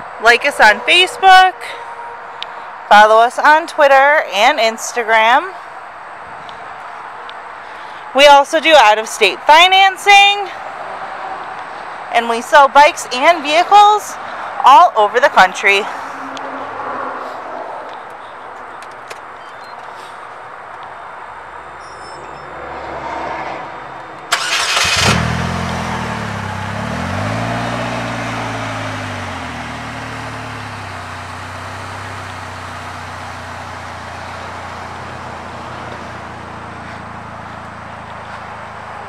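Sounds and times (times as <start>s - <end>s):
car engine revving and idling: 22.7s - 39.0s
engine starter cranking: 24.3s - 25.5s.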